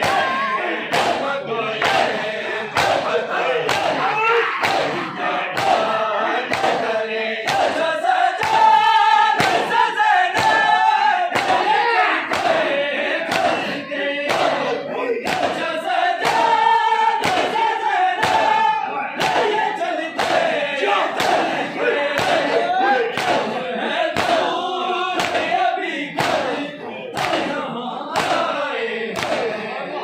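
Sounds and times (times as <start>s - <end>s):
hands slapping chests: 0.0s - 0.3s, 0.9s - 2.1s, 2.8s - 4.0s, 4.6s - 5.9s, 6.5s - 7.8s, 8.4s - 8.8s, 9.4s - 10.7s, 11.3s - 11.7s, 12.3s - 12.6s, 13.3s - 13.6s, 14.3s - 14.6s, 15.2s - 15.6s, 16.2s - 16.6s, 17.2s - 17.6s, 18.2s - 18.6s, 19.2s - 19.6s, 20.2s - 20.5s, 21.2s - 22.5s, 23.1s - 23.5s, 24.2s - 24.5s, 25.2s - 25.6s, 26.2s - 26.6s, 27.2s - 27.5s, 28.2s - 28.5s, 29.2s - 29.5s
men chanting in unison: 0.0s - 30.0s.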